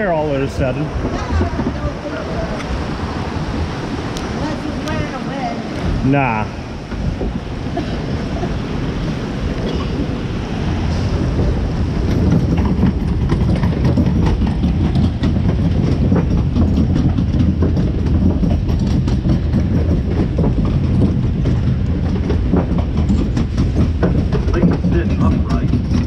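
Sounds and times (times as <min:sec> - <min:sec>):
loud low rumble: 0:00.0 - 0:26.0
irregular clicks and clacks: 0:12.0 - 0:26.0.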